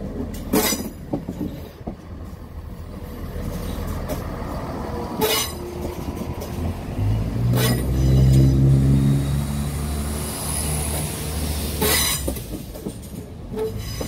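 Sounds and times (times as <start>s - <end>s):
train rolling past: 0.0s - 14.0s
wheels knocking over rail joints: 0.1s - 2.5s, 11.8s - 14.0s
diesel engine note rising: 6.8s - 11.7s.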